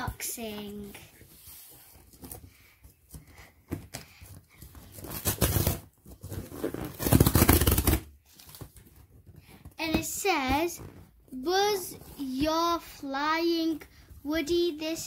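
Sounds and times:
cardboard tear strip ripping: 5.0 - 8.1.

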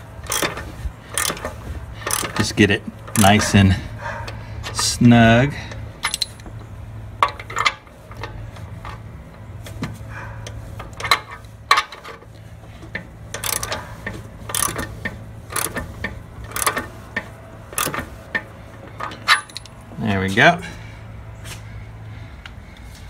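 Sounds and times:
wrench clicking on metal fitting: 0.3 - 3.4, 13.3 - 13.8, 14.5 - 14.9, 15.5 - 15.8, 16.5 - 16.8.

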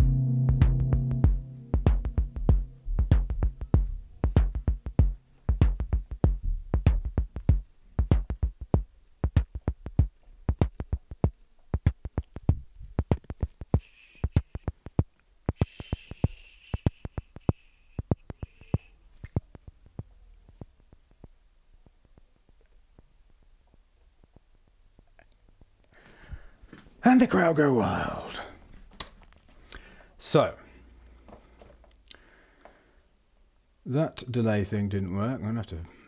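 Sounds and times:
sustained synth chord and bass: 0.0 - 5.2
clicky percussive synth hits: 0.0 - 8.5.

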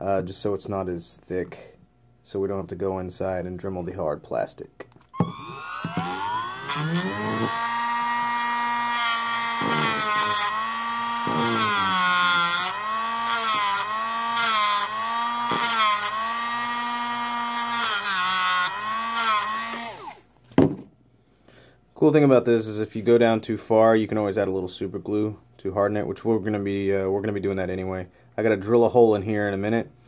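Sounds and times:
rotary tool grinding plastic: 5.2 - 20.2.

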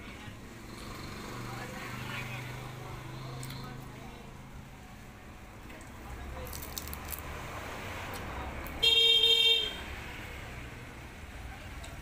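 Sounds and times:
low rumble of passing traffic: 0.0 - 12.0
vehicle horn honking: 8.8 - 9.8.

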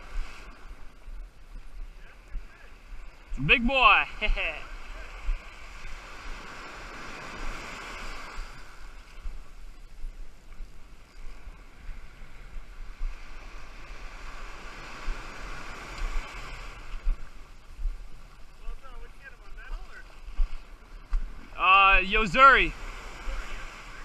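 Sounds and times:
ocean surf breaking on beach: 0.0 - 24.0
wind rumbling on microphone: 0.0 - 24.0.

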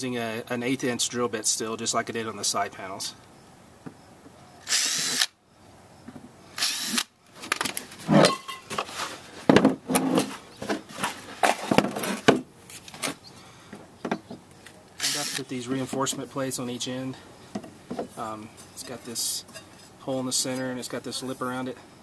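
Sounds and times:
power drill boring through plastic: 4.6 - 5.3, 6.6 - 7.1, 15.0 - 15.4
knocks and clatter of handling: 7.4 - 14.5, 17.5 - 18.2.

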